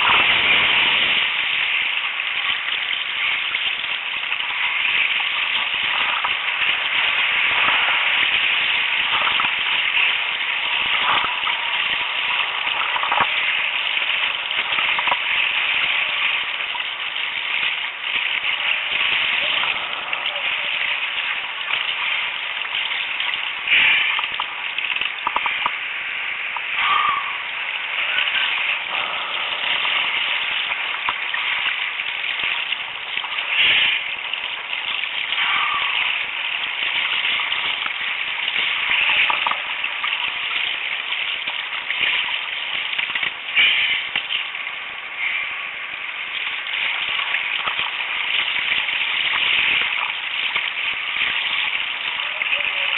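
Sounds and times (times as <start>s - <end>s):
surf splashing: 0.0s - 41.5s.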